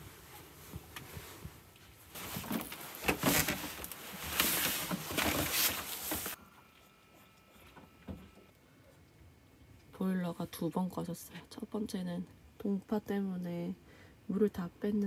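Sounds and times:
padded jacket rustling: 0.0 - 6.4.

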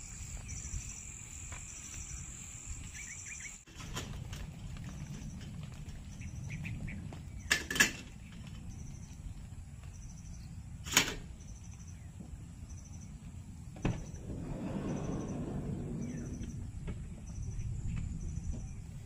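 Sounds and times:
low outdoor rumble: 3.7 - 19.0.

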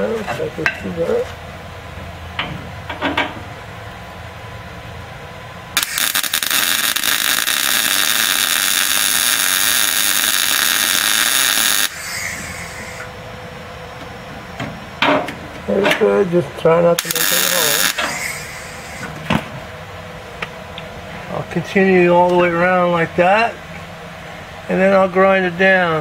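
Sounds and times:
welder arc crackling: 5.8 - 13.1, 17.0 - 19.2.

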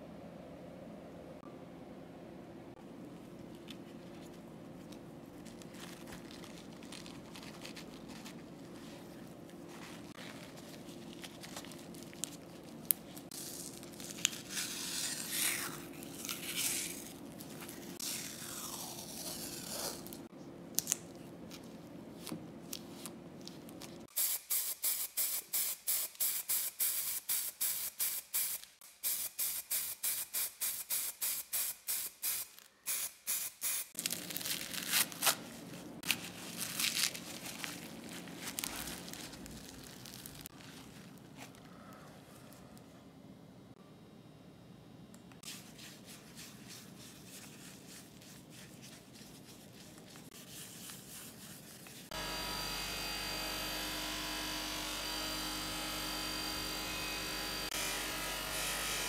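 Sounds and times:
paper towel rustling: 3.6 - 14.5, 34.0 - 41.6
masking tape tearing: 13.3 - 17.2, 18.0 - 20.2, 32.2 - 40.6
aerosol spray bursts: 24.1 - 33.9.

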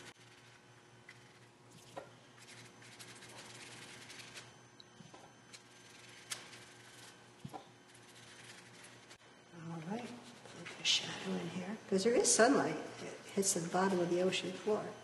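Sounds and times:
paintbrush scratching on paper: 2.4 - 4.5, 5.8 - 9.2, 9.8 - 11.1.

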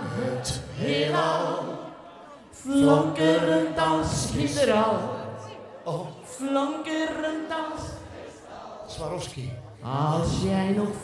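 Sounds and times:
person singing through pa: 2.5 - 8.1, 9.2 - 11.0.

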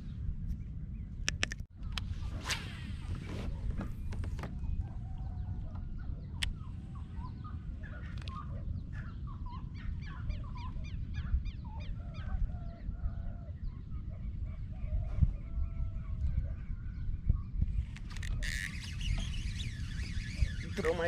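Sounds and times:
birds calling: 3.0 - 21.0
fast rising bird chirps: 17.8 - 21.0.

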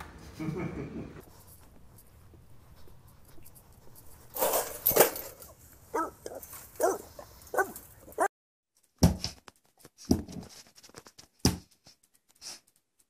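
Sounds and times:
dog scuffling against fence: 3.0 - 8.3
dog whining: 5.9 - 8.3.

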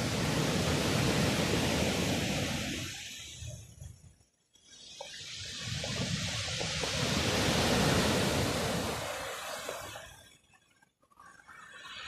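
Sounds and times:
wave washing over pebbles: 0.0 - 3.7, 4.7 - 10.2.

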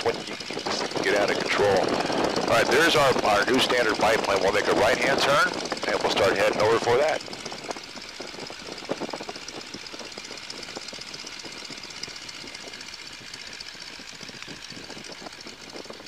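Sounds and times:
biplane radial engine running: 0.0 - 16.0.

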